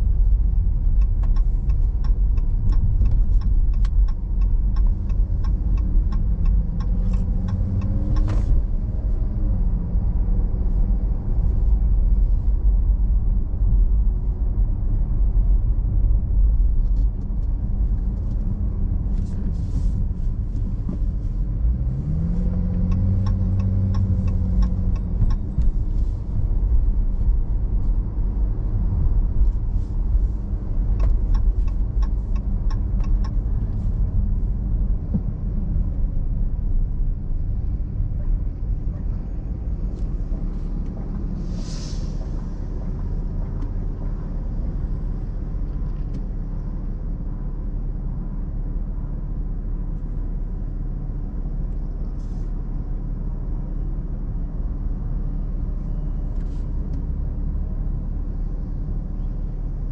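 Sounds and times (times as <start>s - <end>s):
car engine and road rumble: 0.0s - 59.9s
air brakes hiss: 41.3s - 42.6s.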